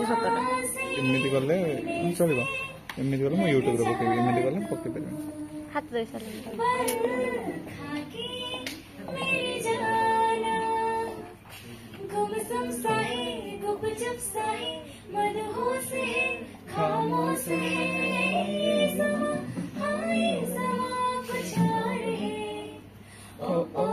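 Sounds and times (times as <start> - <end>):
woman singing: 0.0 - 11.4, 12.0 - 23.9.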